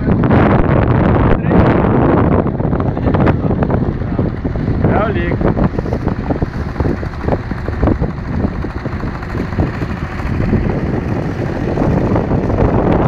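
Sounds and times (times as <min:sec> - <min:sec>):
wind buffeting microphone: 0:00.0 - 0:13.0
small boat engines running: 0:00.1 - 0:13.0.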